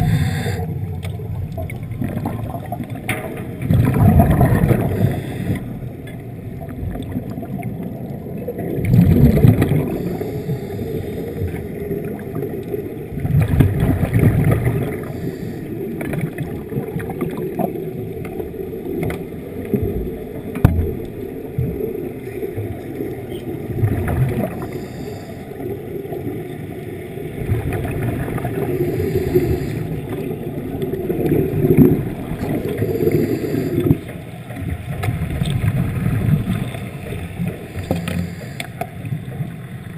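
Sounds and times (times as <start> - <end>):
exhaled air bubbles rushing: 0.0 - 38.6
underwater rumble: 0.0 - 39.9.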